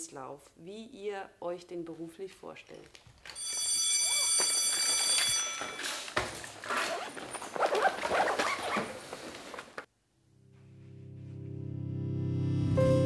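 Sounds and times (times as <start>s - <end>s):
bags and chairs rustling and scraping: 2.8s - 9.9s
school bell ringing: 3.4s - 6.2s
piano music: 10.6s - 13.0s.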